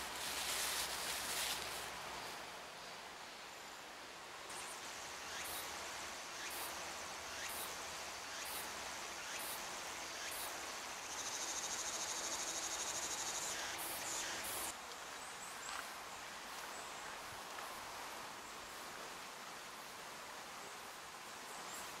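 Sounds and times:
soft outdoor hiss: 0.0s - 22.0s
faint high insect chirps: 4.5s - 14.7s.

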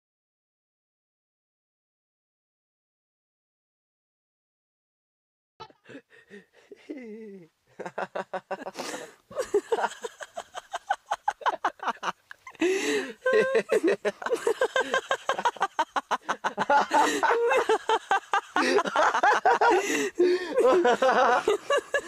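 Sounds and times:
people laughing: 5.7s - 22.0s.

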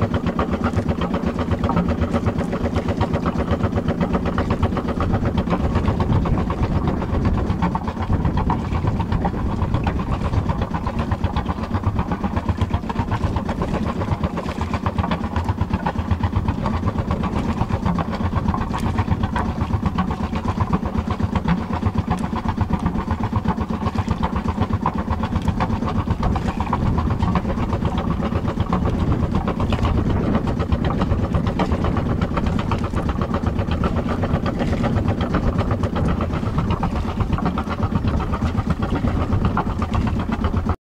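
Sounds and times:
boat engine running: 0.0s - 40.8s.

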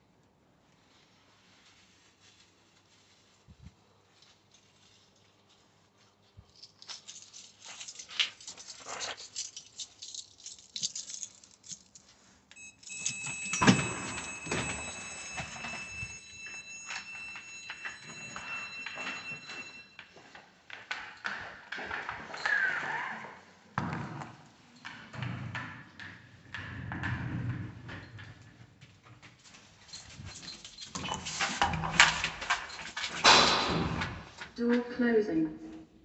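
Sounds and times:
dog harness and lead rattling: 6.4s - 19.5s, 29.5s - 33.3s
footsteps: 12.0s - 22.3s
high electronic tone: 12.6s - 19.7s.

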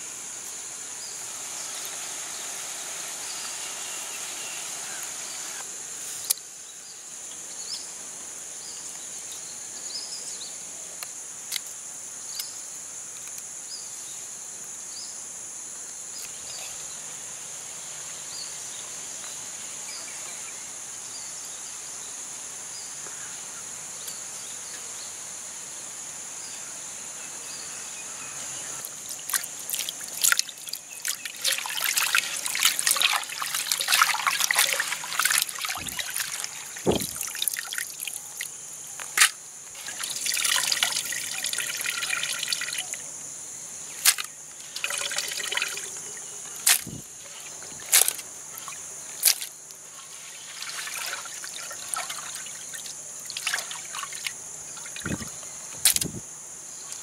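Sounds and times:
hands splashing in water: 29.1s - 38.5s, 46.6s - 55.3s
water trickling and sloshing: 29.1s - 38.5s, 39.7s - 43.0s, 44.0s - 56.1s.

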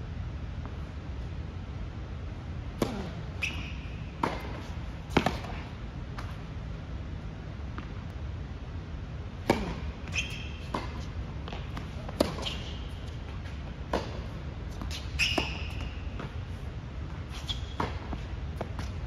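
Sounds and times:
low hum of large hall: 0.0s - 19.0s
sneaker squeaks: 2.8s - 5.7s, 9.5s - 16.5s, 17.1s - 19.0s.

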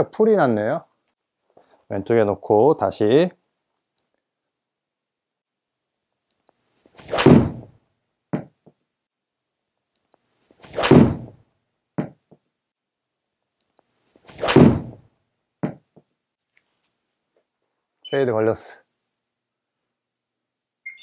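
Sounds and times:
golf club swing whoosh: 7.0s - 7.7s, 10.6s - 11.4s, 14.3s - 15.0s.

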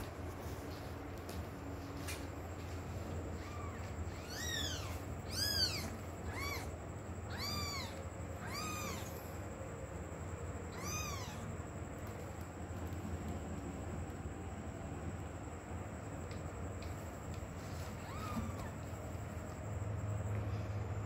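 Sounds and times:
cat meowing: 3.4s - 6.7s, 7.3s - 9.2s, 10.7s - 11.5s, 18.0s - 18.8s.

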